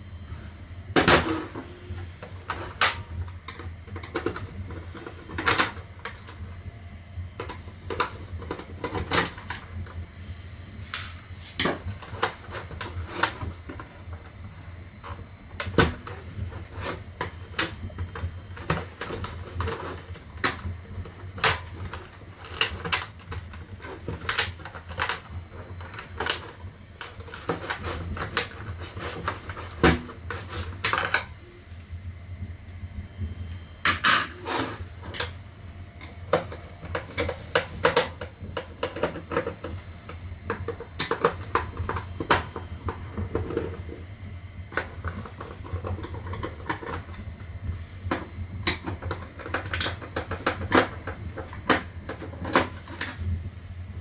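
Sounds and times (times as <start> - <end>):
steady low hum: 0.0 - 54.0
plastic parts clicking and knocking: 1.0 - 6.4, 7.4 - 10.0, 15.0 - 31.3, 36.0 - 44.0, 44.7 - 47.3, 48.1 - 53.3.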